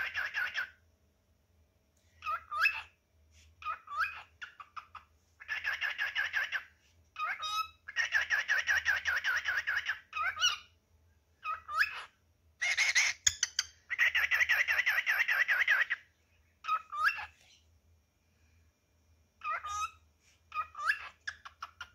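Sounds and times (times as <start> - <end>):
cockatiel chattering warbles: 0.0 - 0.8, 3.6 - 10.6, 11.4 - 16.0.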